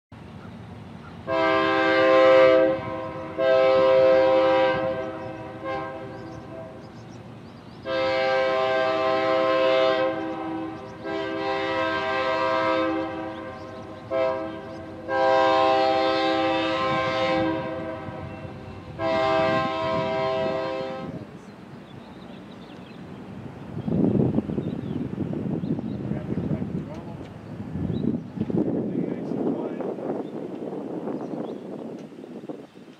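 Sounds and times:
passing train rumble: 0.1 - 32.9
locomotive air horn blasts: 1.2 - 6.9, 7.8 - 21.3.

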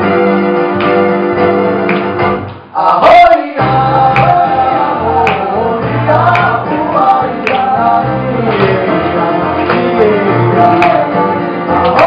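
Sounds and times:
man singing: 2.7 - 12.0.

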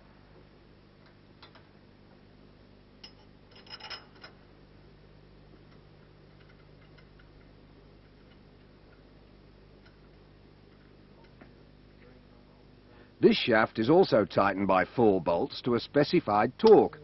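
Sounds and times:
faint low hum: 0.0 - 17.0.

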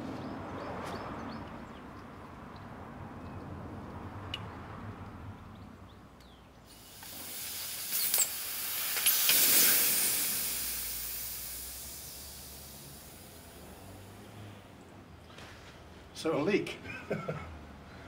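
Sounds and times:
compressed air hissing: 6.7 - 14.6.

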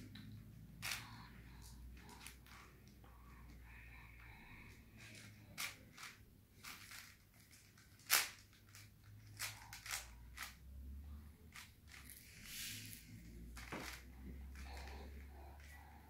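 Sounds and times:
puzzle cube plastic clicks: 5.1 - 10.6.

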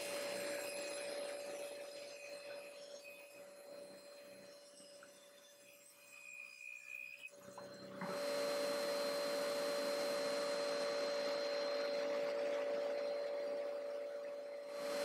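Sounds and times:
table saw running: 7.3 - 15.0.

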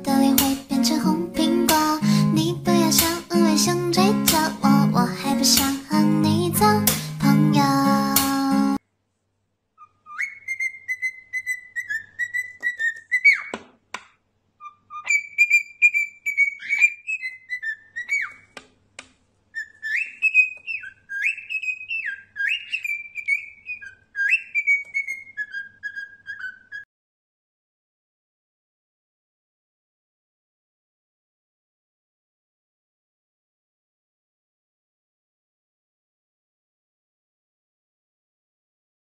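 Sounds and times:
cockatiel whistling a tune: 9.8 - 13.6, 14.6 - 18.4, 19.5 - 26.9.

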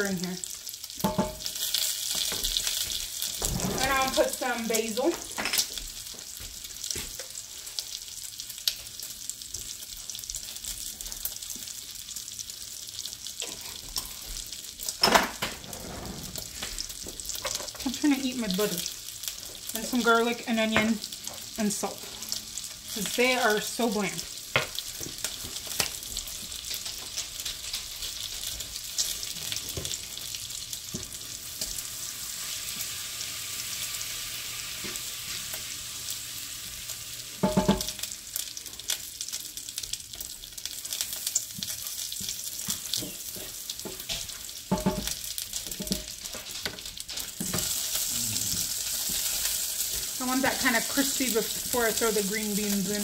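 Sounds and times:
bacon frying: 0.0 - 53.0
butter sizzling in a frying pan: 0.0 - 53.0
utensil scraping a pan: 3.4 - 4.6, 15.1 - 17.8
utensil knocking on a pan: 37.4 - 38.0, 44.7 - 45.1.

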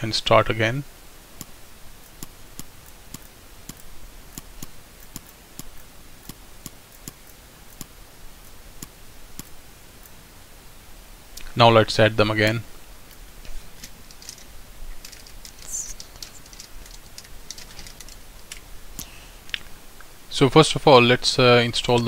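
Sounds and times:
faint steady hiss: 0.0 - 22.0
computer mouse clicking: 1.4 - 8.0, 8.8 - 10.2, 13.8 - 19.1.

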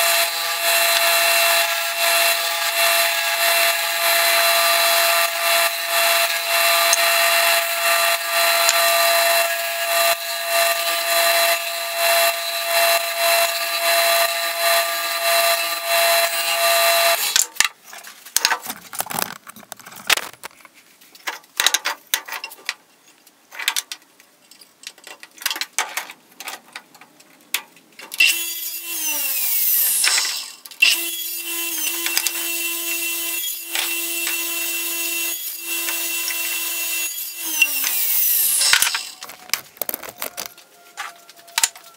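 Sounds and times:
sander sanding wood: 0.0 - 17.4, 31.4 - 40.2
saw motor running: 0.0 - 17.4, 28.2 - 40.2
wooden pieces knocking: 38.7 - 41.8.

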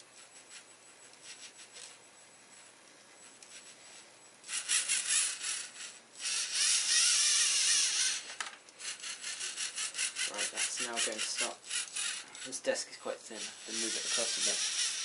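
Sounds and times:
servo motors whirring: 3.2 - 12.7, 13.3 - 15.0
rapid motor pulsing: 3.5 - 12.7, 13.3 - 15.0.

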